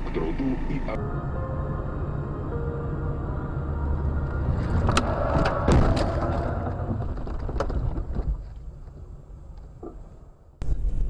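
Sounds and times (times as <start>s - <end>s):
low road rumble: 0.0s - 11.0s
car crash thumps and crunches: 4.7s - 8.5s.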